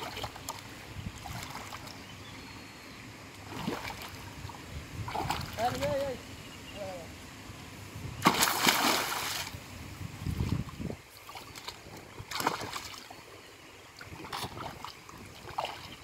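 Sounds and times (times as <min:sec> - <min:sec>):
fish splashing in water: 0:03.4 - 0:04.3, 0:08.2 - 0:09.6, 0:11.1 - 0:13.1, 0:14.0 - 0:16.0.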